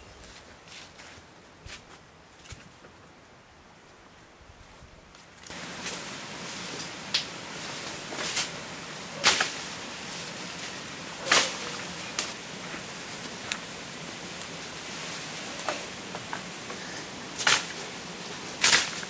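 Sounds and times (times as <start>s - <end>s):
leafy branches rustling: 0.0s - 19.0s
branches snapping and knocking: 9.2s - 19.0s.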